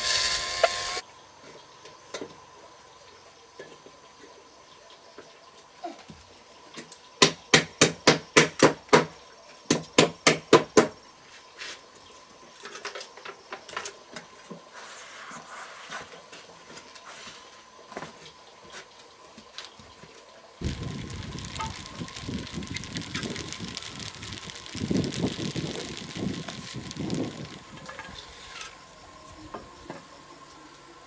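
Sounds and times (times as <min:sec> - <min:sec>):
hammer striking bamboo frame: 0:07.2 - 0:09.1, 0:09.7 - 0:11.0
handling noise: 0:20.6 - 0:28.8.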